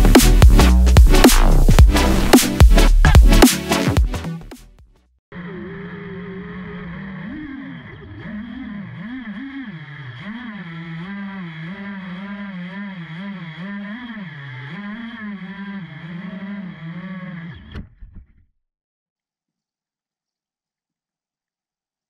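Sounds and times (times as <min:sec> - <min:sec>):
drone motors buzzing whine: 0:05.4 - 0:17.8.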